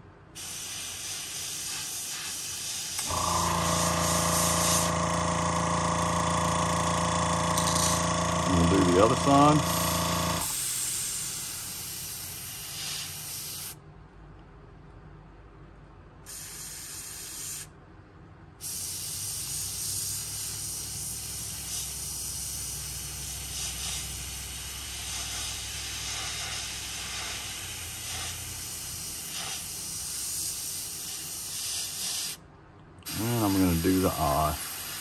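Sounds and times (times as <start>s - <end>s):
airbrush spraying hiss: 0.4s - 5.0s, 8.7s - 13.8s, 16.3s - 17.7s, 18.6s - 32.4s, 33.1s - 35.0s.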